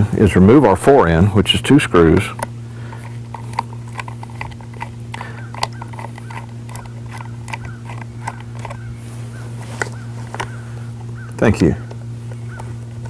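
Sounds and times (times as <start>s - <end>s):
steady low hum: 0.0s - 13.0s
metal clicks and ticks: 2.1s - 8.8s.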